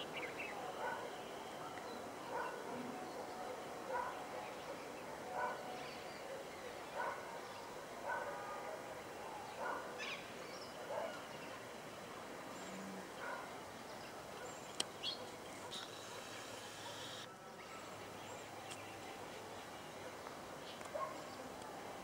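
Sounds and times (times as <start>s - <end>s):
dog barking: 0.8s - 10.0s, 10.8s - 11.6s, 13.2s - 13.5s, 14.4s - 17.2s, 20.9s - 21.4s.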